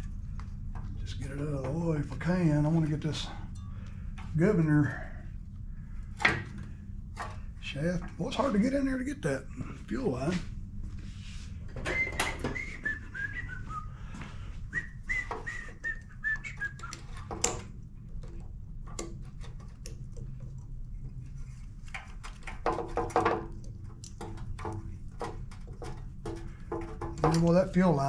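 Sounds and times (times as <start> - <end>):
steady low hum: 0.0 - 28.0
person whistling: 11.8 - 17.0.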